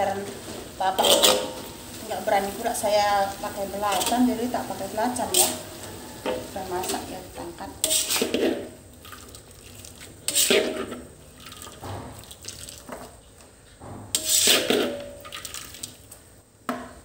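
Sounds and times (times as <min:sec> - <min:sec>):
metal spatula scooping in wok: 0:00.2 - 0:13.1, 0:14.1 - 0:16.1.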